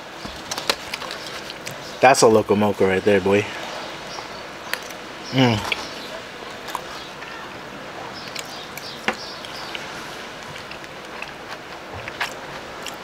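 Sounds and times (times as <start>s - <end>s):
steady background hiss: 0.0s - 13.0s
chewing: 0.2s - 1.9s, 4.1s - 7.1s, 8.2s - 13.0s.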